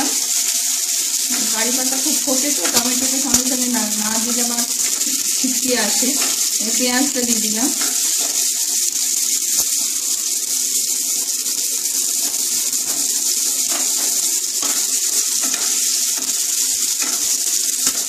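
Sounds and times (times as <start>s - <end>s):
vegetables sizzling in hot oil: 0.0s - 18.0s.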